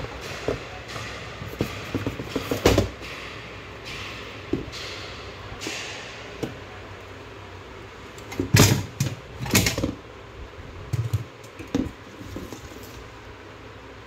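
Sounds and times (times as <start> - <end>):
plastic and metal parts clattering: 0.1 - 3.3, 8.2 - 10.0, 10.9 - 13.1.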